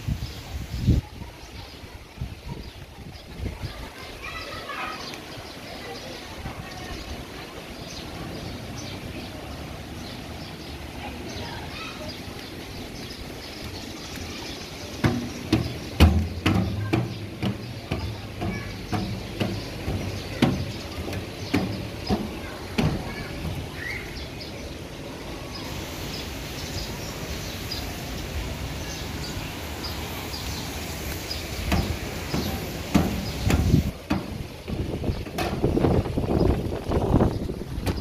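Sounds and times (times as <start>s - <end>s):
outdoor background noise: 0.0s - 38.0s
footsteps on metal stairs: 13.6s - 23.8s, 31.1s - 36.6s.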